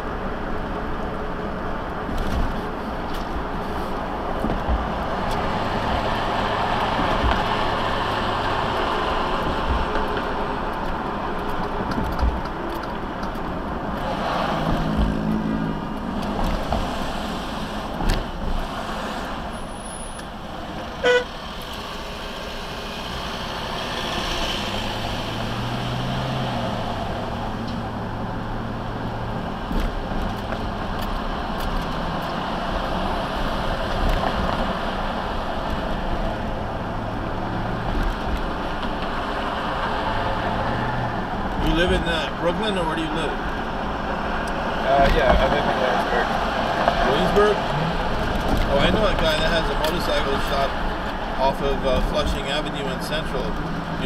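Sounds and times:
car road and engine noise: 0.0s - 54.0s
short horn beep: 21.0s - 21.3s.

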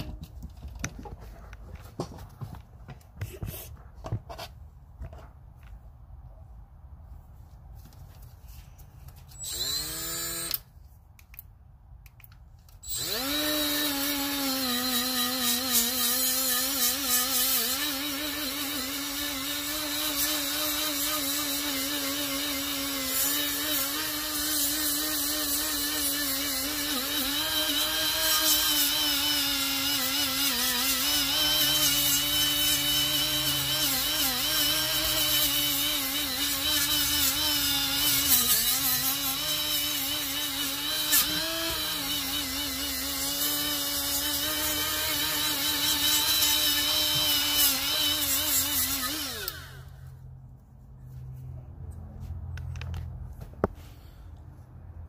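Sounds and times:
die grinder grinding metal: 9.3s - 10.7s, 12.8s - 50.1s.

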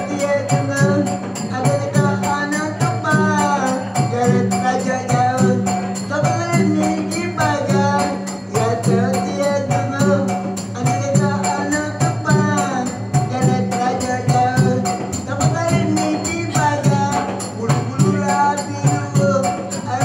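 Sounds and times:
low drum: 0.0s - 20.0s
small jingling percussion: 0.0s - 20.0s.

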